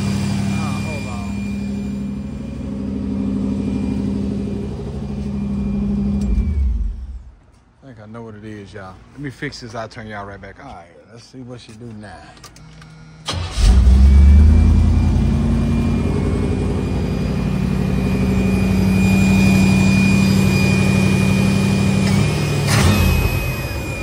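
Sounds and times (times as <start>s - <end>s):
car engine starting and idling: 0.0s - 7.5s, 13.0s - 24.0s.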